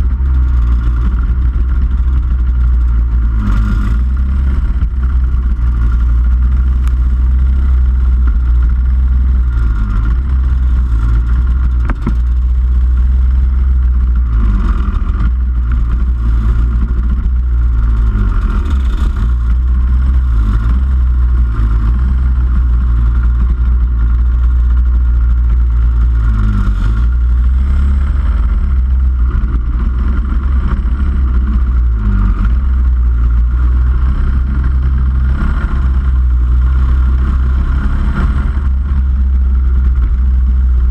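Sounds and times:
kart engines revving: 0.0 - 40.9.

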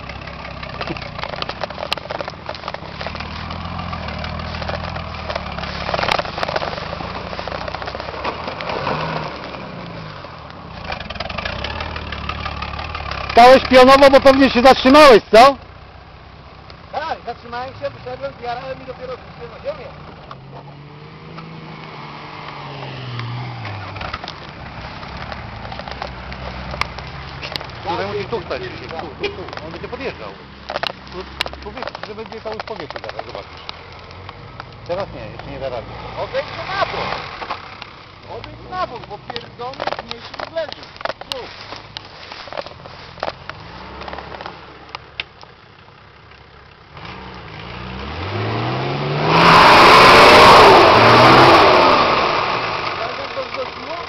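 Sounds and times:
diesel engine running at low revs: 0.0 - 20.7
rough crackle: 0.0 - 20.7, 21.3 - 48.0, 49.5 - 54.0
diesel engine climbing slope: 0.0 - 54.0.

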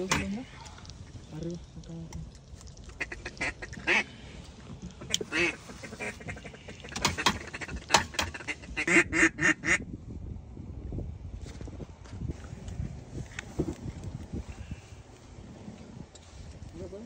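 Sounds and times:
duck quacking: 3.0 - 4.1, 5.0 - 9.8.

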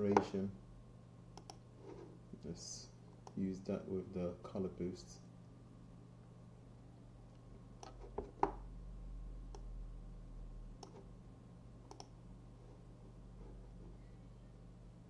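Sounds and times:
steady low hum: 0.0 - 15.0
faint computer clicks: 1.4 - 1.6, 10.8 - 11.0, 11.9 - 12.2.

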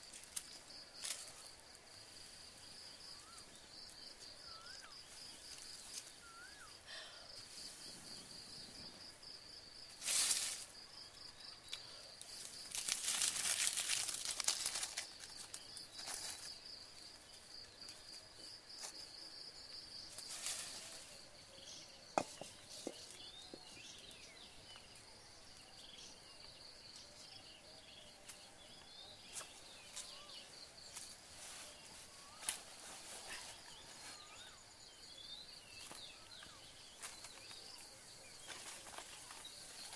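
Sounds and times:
sticks and leaves rustling: 0.0 - 8.4, 9.9 - 19.3, 20.0 - 25.7, 28.2 - 34.6, 35.7 - 39.9
insects trilling: 0.0 - 39.9
bird chirps: 3.0 - 6.8, 21.4 - 30.7, 31.8 - 39.9
sticks snapping: 32.4 - 32.6.

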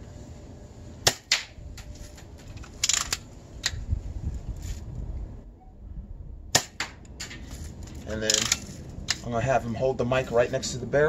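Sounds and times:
gun lever metallic clicks: 2.5 - 3.8, 7.0 - 9.2.

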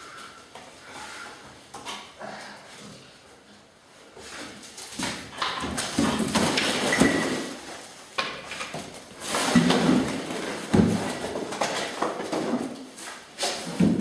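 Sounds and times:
bottles knocking and clattering: 5.3 - 7.6.

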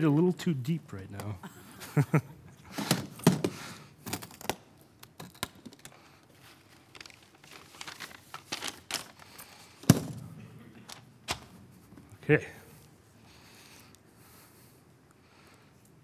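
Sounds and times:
rustling and crinkling: 4.0 - 10.2.

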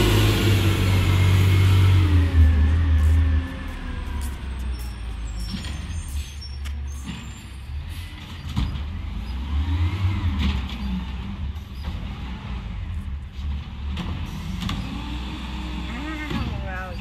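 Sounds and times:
garbage truck engine rumble: 0.0 - 17.0.

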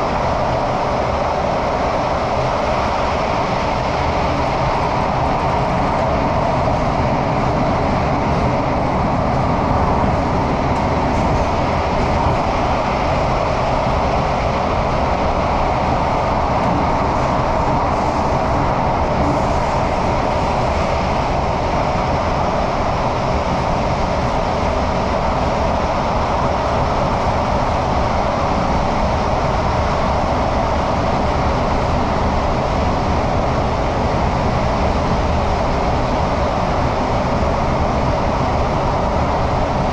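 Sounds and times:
train rumbling through tunnel: 0.0 - 39.9.

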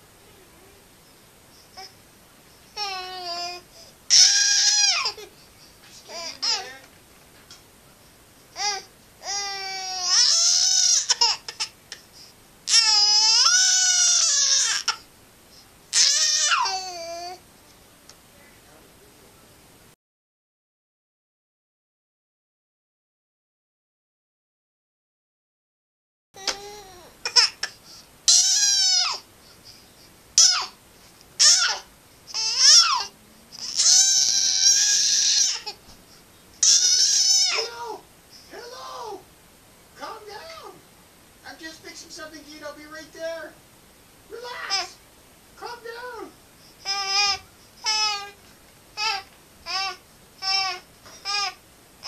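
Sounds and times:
baby crying: 2.8 - 5.3, 6.1 - 6.8, 8.6 - 11.8, 12.7 - 15.1, 15.9 - 17.4, 26.4 - 29.3, 30.4 - 30.8, 31.4 - 35.8, 36.6 - 39.2, 44.4 - 45.0, 46.8 - 48.4, 49.0 - 51.6.

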